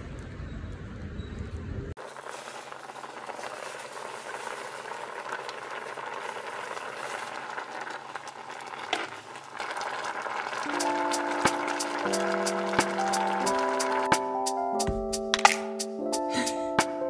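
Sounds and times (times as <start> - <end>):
soup boiling and bubbling: 2.0 - 14.2.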